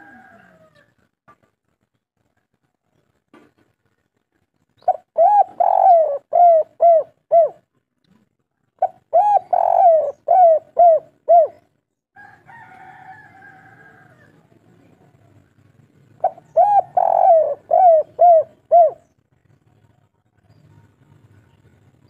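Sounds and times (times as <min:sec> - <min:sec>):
dove cooing: 0:04.8 - 0:07.7, 0:08.8 - 0:11.7, 0:16.2 - 0:19.2.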